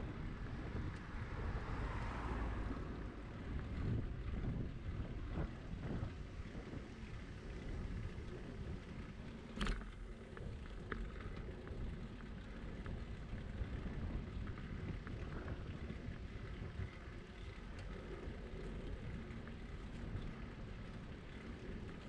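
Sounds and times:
wind on microphone: 0:00.0 - 0:09.8
bicycle tyre rumble on asphalt: 0:00.0 - 0:22.0
light ticks: 0:17.4 - 0:20.3.

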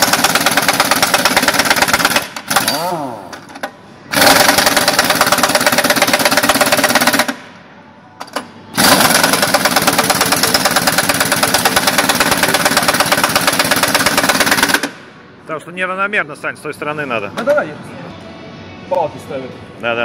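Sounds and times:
pneumatic impact wrench hammering: 0:00.0 - 0:07.4, 0:08.2 - 0:15.0.

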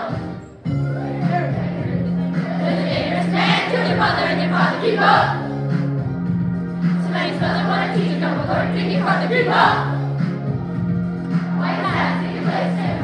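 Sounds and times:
instrumental backing track: 0:00.0 - 0:13.0
children singing: 0:01.3 - 0:05.5, 0:07.0 - 0:10.1, 0:11.3 - 0:13.0.

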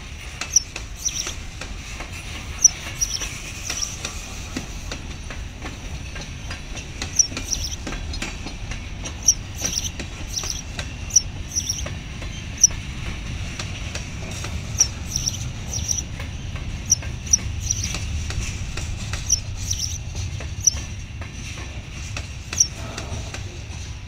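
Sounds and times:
freight train cars rumbling: 0:00.0 - 0:24.0
high squeaks: 0:00.4 - 0:01.4, 0:02.2 - 0:04.1, 0:07.0 - 0:11.9, 0:14.7 - 0:16.2, 0:16.8 - 0:18.0, 0:19.1 - 0:20.8, 0:22.5 - 0:22.8.

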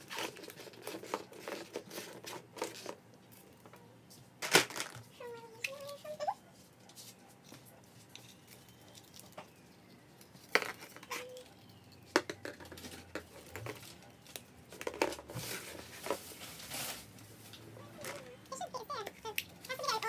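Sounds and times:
plastic eggs clicking: 0:08.1 - 0:15.3.

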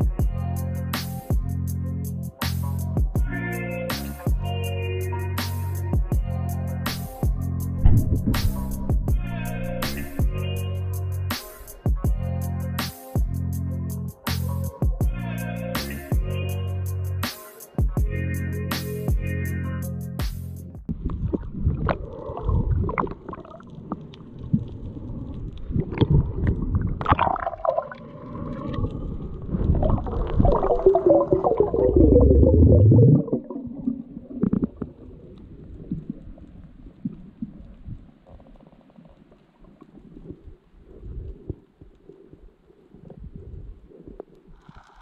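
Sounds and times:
underwater gurgling and rumbling: 0:07.4 - 0:11.2, 0:20.8 - 0:45.0
underwater knocks: 0:07.8 - 0:09.3.

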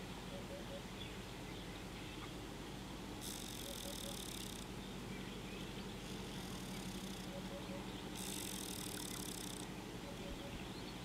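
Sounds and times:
steady low hum: 0:00.0 - 0:11.0
insect buzzing: 0:03.2 - 0:04.7, 0:06.0 - 0:07.5, 0:08.1 - 0:09.7.

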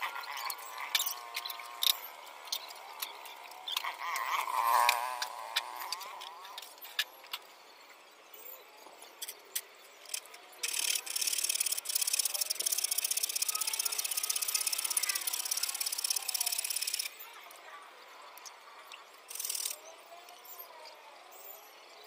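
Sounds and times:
sharp clicks: 0:09.2 - 0:17.2, 0:19.3 - 0:19.8.

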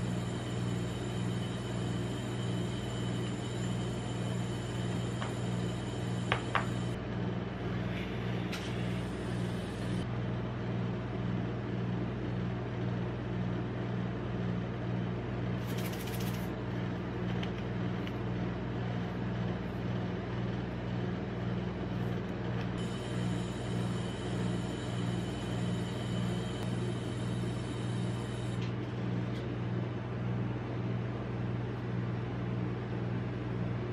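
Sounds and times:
machine cold plate humming: 0:00.0 - 0:10.8, 0:15.5 - 0:31.0.

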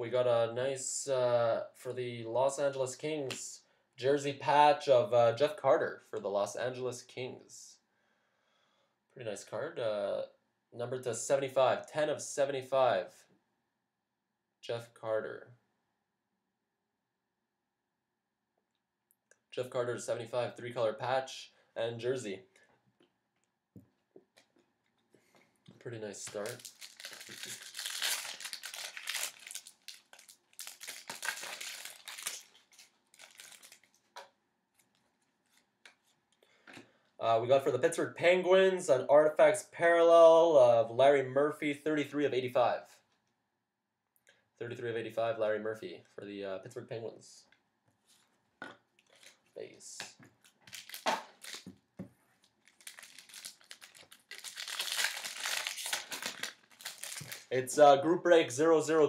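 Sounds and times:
wrapper crinkling and rustling: 0:26.2 - 0:34.2, 0:50.4 - 0:51.8, 0:52.4 - 0:57.6.

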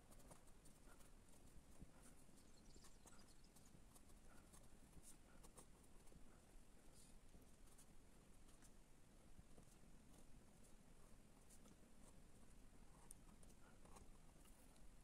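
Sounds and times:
pen scratching on paper: 0:00.0 - 0:07.9, 0:11.0 - 0:14.8.

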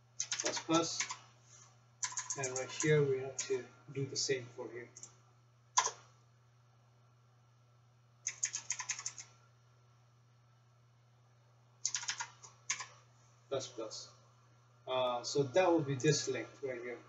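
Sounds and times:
faint steady low hum: 0:00.0 - 0:17.0
computer keyboard typing: 0:00.2 - 0:01.2, 0:02.0 - 0:03.6, 0:05.8 - 0:06.1, 0:08.2 - 0:09.3, 0:11.8 - 0:13.0.

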